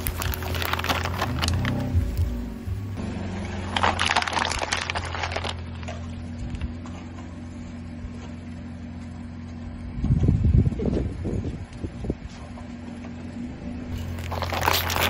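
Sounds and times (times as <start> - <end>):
steady low hum: 0.0 - 15.0
tyre crushing watermelon: 14.0 - 15.0.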